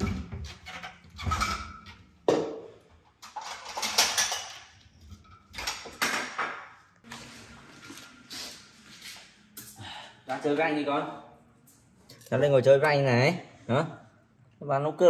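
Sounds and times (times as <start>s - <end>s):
kitchenware clattering: 0.0s - 6.8s.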